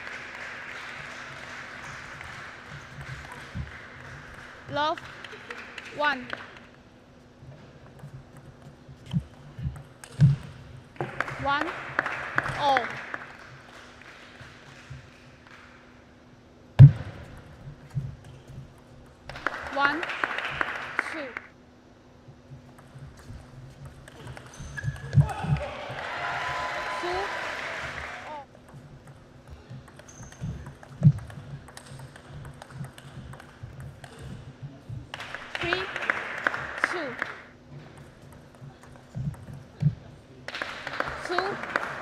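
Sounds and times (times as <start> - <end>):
table tennis ball taps: 28.6 - 34.5.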